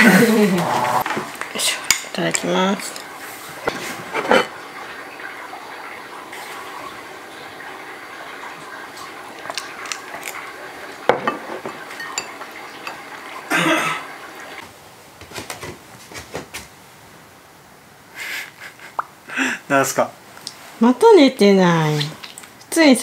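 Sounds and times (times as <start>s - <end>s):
tableware clinking: 3.6s - 4.5s, 11.1s - 13.1s.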